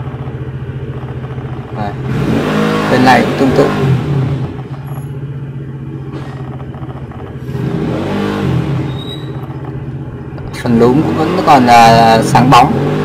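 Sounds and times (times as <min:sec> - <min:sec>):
vehicle engine hum: 0:00.0 - 0:13.0.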